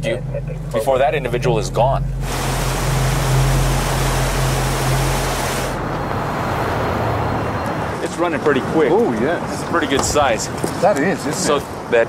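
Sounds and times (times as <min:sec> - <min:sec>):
truck engine hum: 0:00.0 - 0:10.6
loud rushing noise: 0:02.2 - 0:07.9.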